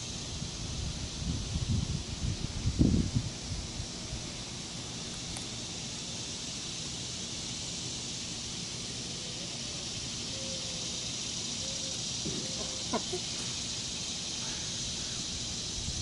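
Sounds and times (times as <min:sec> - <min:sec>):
steady high hiss: 0:00.0 - 0:16.0
faint bird calls: 0:09.1 - 0:13.6, 0:14.4 - 0:15.3.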